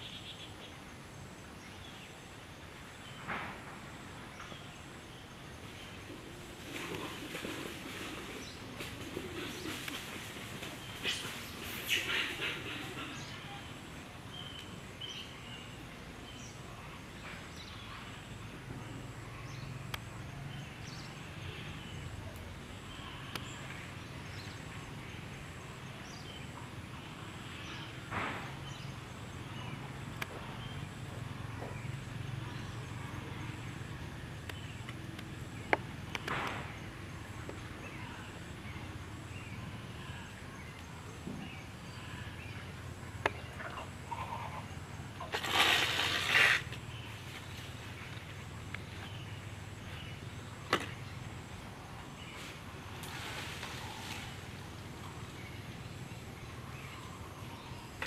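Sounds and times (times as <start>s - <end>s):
rustling rushes: 52.4s - 54.7s.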